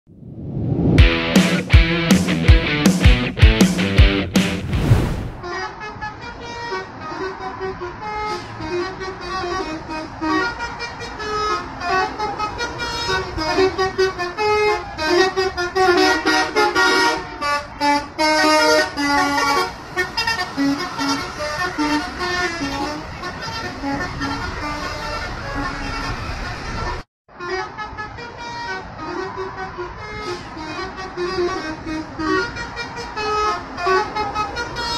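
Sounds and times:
bus horn playing a tune: 5.4 - 34.9.

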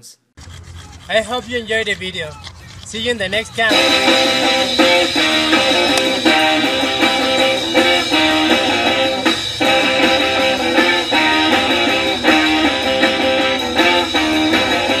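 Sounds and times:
strummed guitar chords: 3.7 - 15.0.

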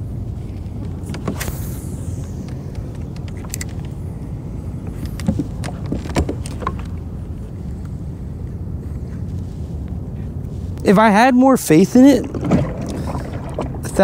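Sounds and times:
fishing rod clicks and knocks: 2.4 - 3.9, 5.0 - 7.0
low rumble of kayak drifting: 11.9 - 14.0.

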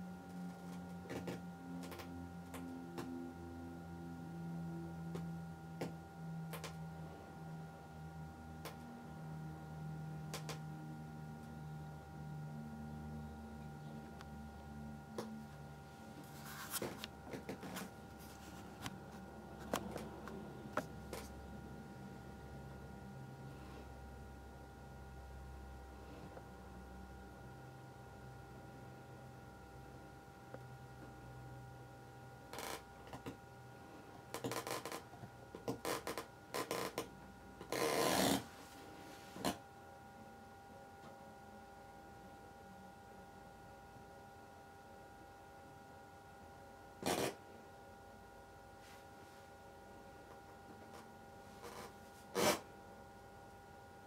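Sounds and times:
steady low hum: 0.0 - 54.0
handling rustling and rubbing: 16.1 - 20.2.

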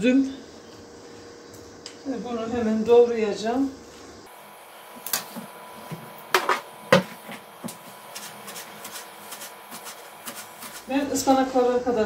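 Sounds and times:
knife chopping on wooden board: 6.4 - 10.9.

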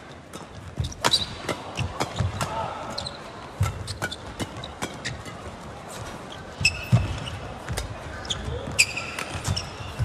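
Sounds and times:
shoes thudding and squeaking: 0.0 - 10.0
rackets hitting shuttlecock: 0.3 - 5.7, 8.7 - 10.0.

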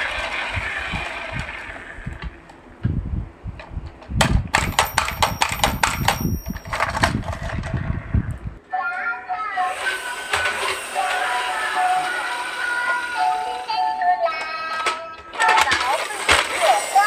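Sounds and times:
toy train motor whirring: 4.5 - 7.8, 9.6 - 17.0.

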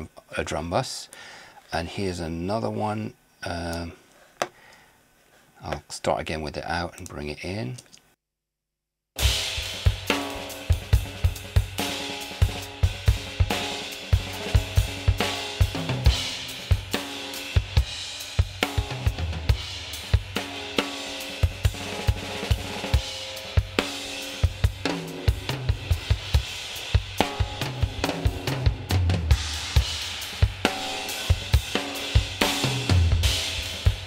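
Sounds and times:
drum kit playing a groove: 9.2 - 34.0.

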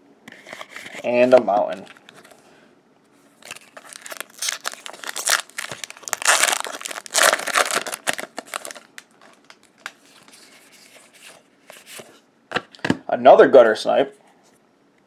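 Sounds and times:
foil wrapper crinkling and tearing: 3.4 - 10.4.

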